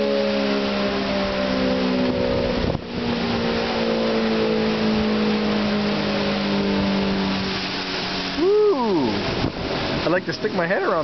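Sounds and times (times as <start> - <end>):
storm warning siren: 0.0 - 11.0
wind: 0.0 - 11.0
heavy rain: 4.8 - 11.0.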